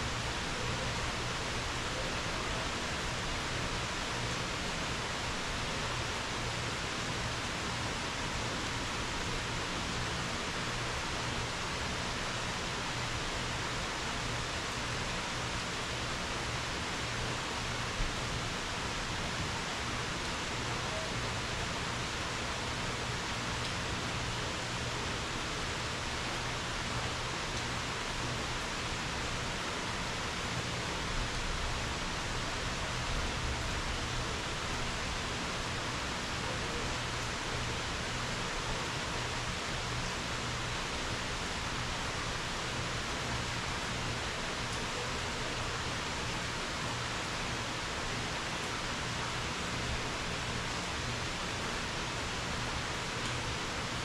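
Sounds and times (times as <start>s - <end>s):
steady rain: 0.0s - 54.0s.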